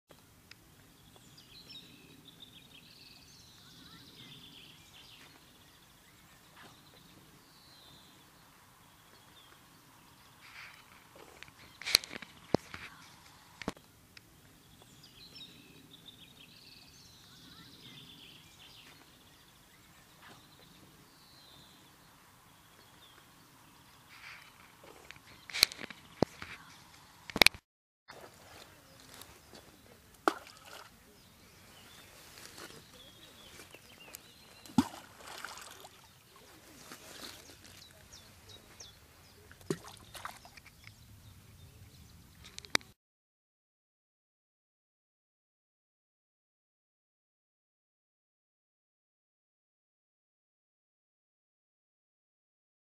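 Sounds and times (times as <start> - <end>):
small birds twittering: 0.1 - 27.3, 28.2 - 42.9
river water trickling over pebbles: 33.8 - 38.3.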